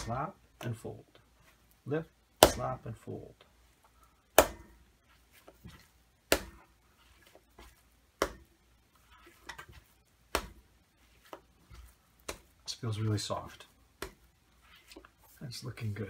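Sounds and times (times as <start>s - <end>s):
hands handling dough: 0.0s - 16.0s
dough slapped onto stone worktop: 2.4s - 2.6s, 4.3s - 4.7s, 6.3s - 6.6s, 8.2s - 8.5s, 10.3s - 10.7s, 14.0s - 14.3s.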